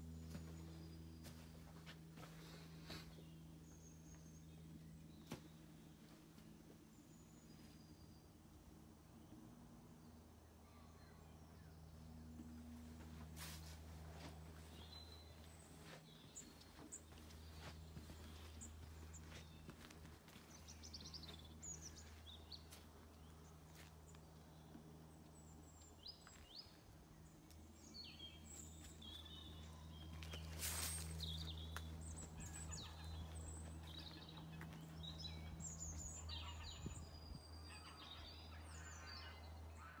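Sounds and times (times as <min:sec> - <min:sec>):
small birds chirping and trilling: 0:10.5 - 0:40.0.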